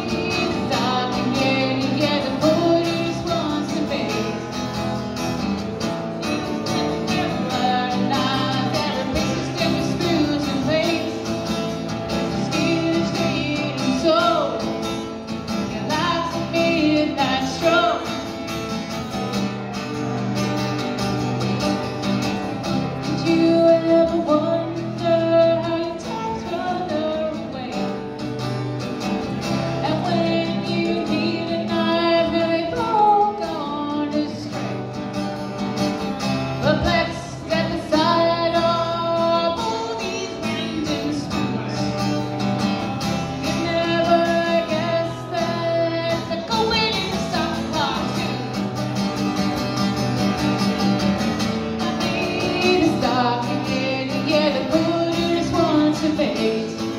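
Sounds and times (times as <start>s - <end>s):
person singing into a microphone: 0.0s - 4.8s, 6.2s - 18.4s, 22.8s - 28.2s, 29.6s - 35.1s, 36.5s - 42.4s, 43.1s - 48.9s, 51.3s - 56.9s
acoustic guitar: 0.0s - 56.9s.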